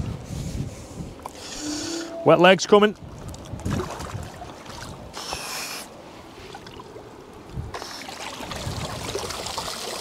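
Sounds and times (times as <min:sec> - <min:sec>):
rush of water: 0:01.3 - 0:10.0
water sloshing around legs: 0:03.0 - 0:10.0.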